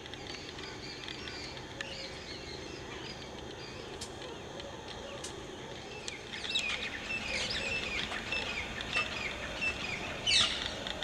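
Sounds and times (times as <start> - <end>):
outdoor background hiss: 0.0 - 11.0
small birds chirping: 0.0 - 11.0.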